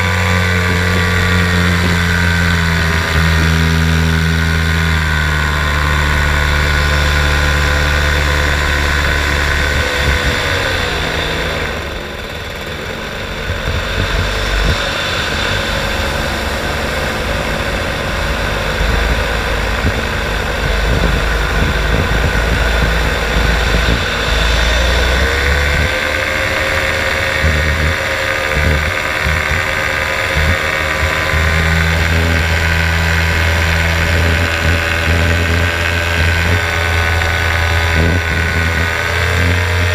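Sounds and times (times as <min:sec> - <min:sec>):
paramotor engine droning: 0:00.0 - 0:39.9
wind buffeting microphone: 0:07.2 - 0:12.1, 0:13.2 - 0:39.9.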